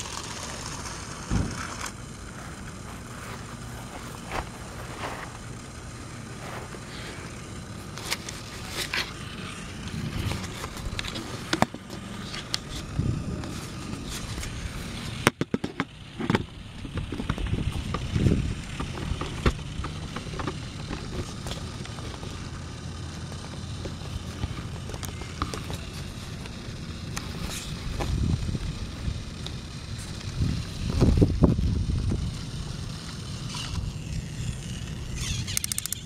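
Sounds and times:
wheels clicking on plastic track: 0.0 - 2.2, 23.2 - 36.0
toy train motor running: 0.0 - 36.0.

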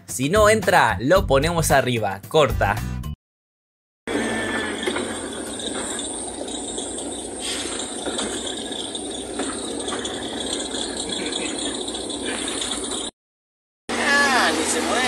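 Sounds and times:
faint high steady tone: 4.1 - 13.1
rattling street traffic: 4.1 - 13.2, 13.9 - 15.0.

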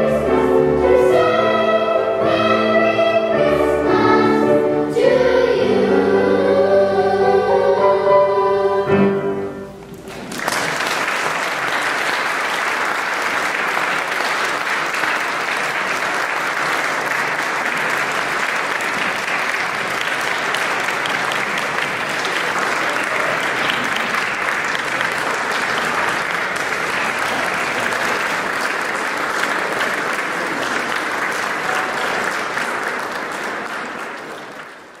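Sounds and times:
choir with piano: 0.0 - 9.8
audience applause: 9.9 - 35.0.

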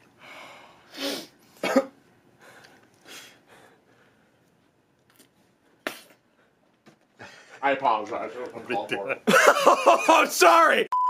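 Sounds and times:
man breathing quietly: 0.0 - 1.4, 2.3 - 4.7
sharp puff of breath: 0.3 - 1.4.

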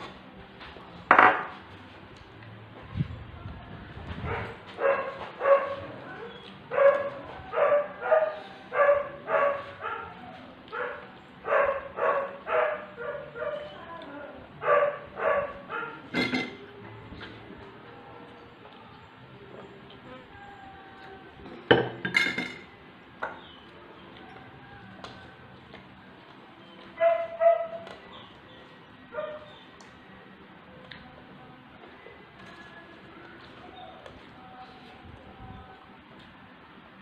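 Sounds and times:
dog barking: 4.2 - 13.7, 14.6 - 16.1, 27.0 - 28.4, 29.1 - 29.6.

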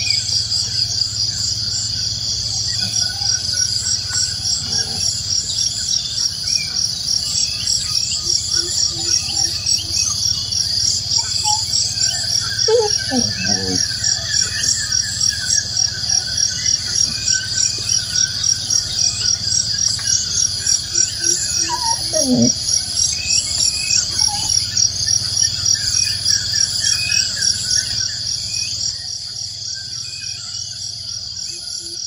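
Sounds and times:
birds chirping: 0.0 - 32.0
pulsing insect chorus: 0.0 - 32.0.

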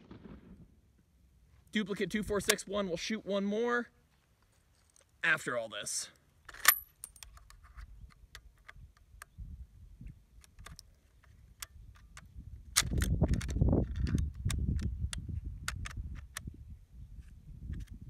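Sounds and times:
rifle handling clicks: 6.5 - 9.3, 10.4 - 16.5
rifle clip seating click: 12.8 - 16.5.

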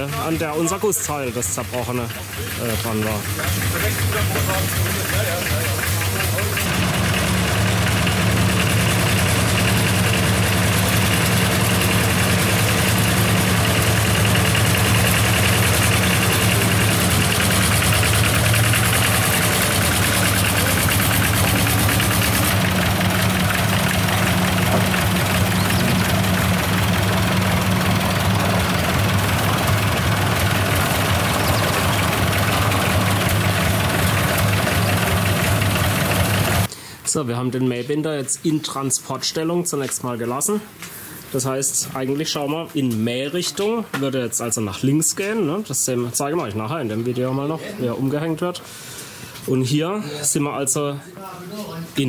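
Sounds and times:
tractor engine running: 0.0 - 36.7.

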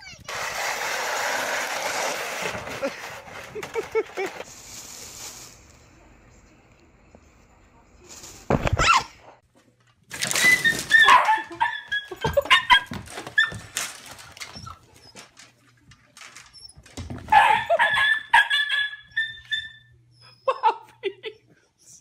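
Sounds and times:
dog barking and yelping: 10.8 - 13.6, 17.3 - 19.8.

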